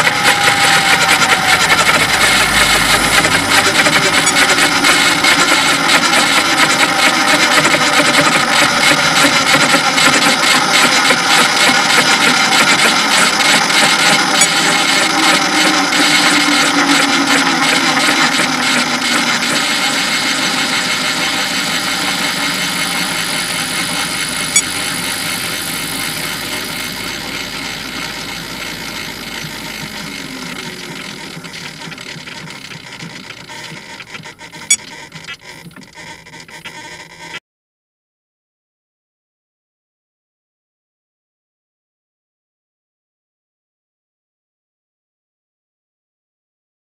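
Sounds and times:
rc helicopter rotor winding down: 0.0 - 37.4.

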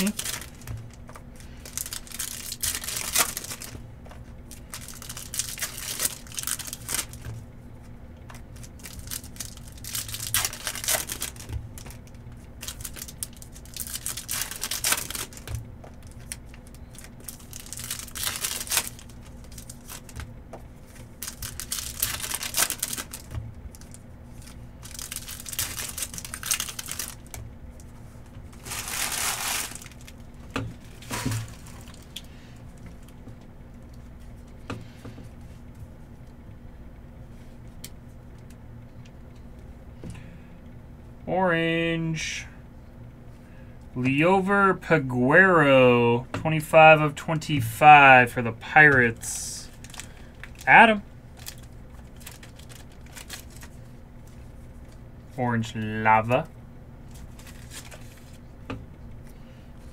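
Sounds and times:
wrappers tearing and crinkling: 0.0 - 3.8, 4.5 - 7.3, 8.4 - 20.2, 21.1 - 27.4, 28.5 - 32.3, 49.7 - 53.8, 57.1 - 58.4
low steady hum: 0.0 - 59.9.

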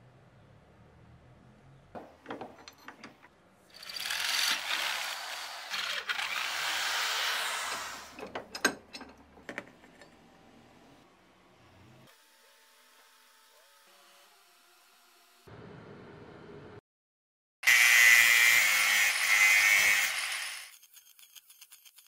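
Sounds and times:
tool clicks and knocks: 2.0 - 3.3, 8.2 - 10.2.

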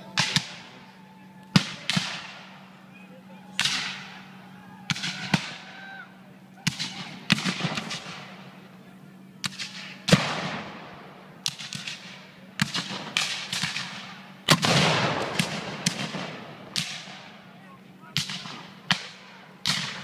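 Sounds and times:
cannon fire: 0.1 - 0.8, 1.5 - 2.7, 3.6 - 4.2, 4.9 - 5.8, 6.6 - 8.6, 9.4 - 17.4, 18.1 - 20.0
musket shots: 0.1 - 0.8, 1.5 - 2.6, 3.6 - 4.2, 6.6 - 8.4, 9.4 - 17.3, 18.1 - 20.0.

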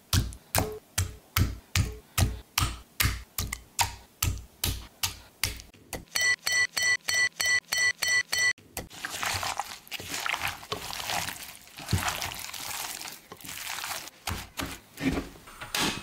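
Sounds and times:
wet squelching of marinade: 8.9 - 14.8
glove crinkling: 8.9 - 15.0.

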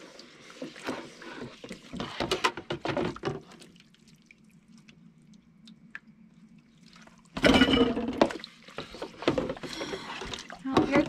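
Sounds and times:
tap water splashing on dishes: 1.6 - 5.0, 7.0 - 11.0
dishes clinking: 7.4 - 8.3.

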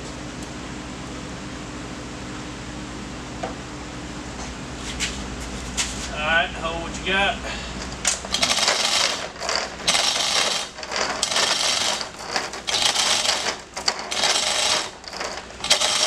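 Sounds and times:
chain rattling through hoist: 8.0 - 16.0.

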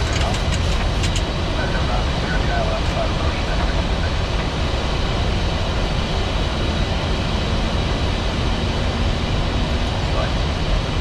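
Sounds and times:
jet engines droning: 0.0 - 11.0.

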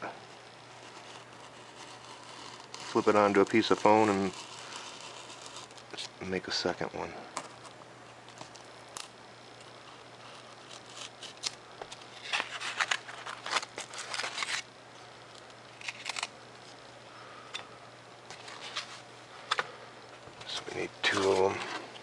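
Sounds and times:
knife blade scratching paper: 0.8 - 5.8, 9.8 - 11.6
paper rustling and crinkling: 10.2 - 14.7, 18.3 - 19.6, 20.4 - 22.0.

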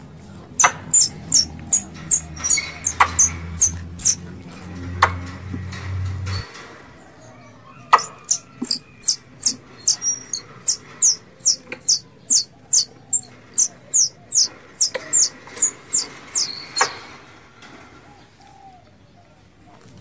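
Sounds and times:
squirrel chirping: 0.0 - 4.2, 7.9 - 17.0
sharp knocks: 7.9 - 12.0.

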